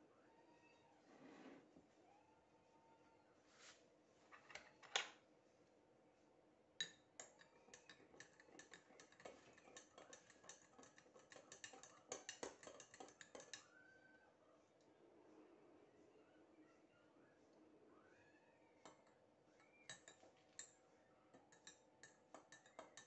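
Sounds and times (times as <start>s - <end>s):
teaspoon clinking against glass mug: 6.8s - 13.7s, 18.9s - 20.8s, 21.4s - 23.0s.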